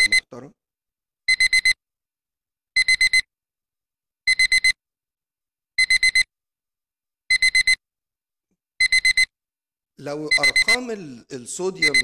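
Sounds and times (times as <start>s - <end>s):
electronic alarm beeping: 1.3s - 1.8s, 2.8s - 3.3s, 4.3s - 4.8s, 5.8s - 6.3s, 7.3s - 7.8s, 8.8s - 9.3s, 10.2s - 10.9s, 11.8s - 12.0s.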